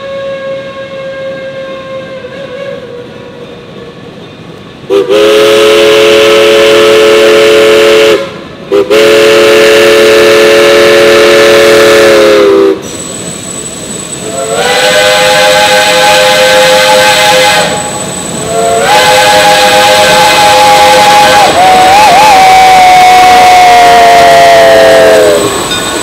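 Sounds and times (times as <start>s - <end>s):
steam whistle blasts: 0.0s - 3.4s, 4.9s - 13.1s, 14.2s - 25.5s
steam hissing: 8.0s - 26.0s.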